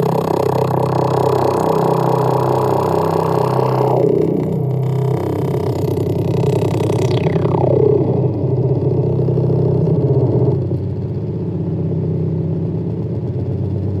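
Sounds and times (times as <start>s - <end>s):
synth filter sweep: 0.0s - 11.0s
low buzzing synth drone: 0.0s - 14.0s.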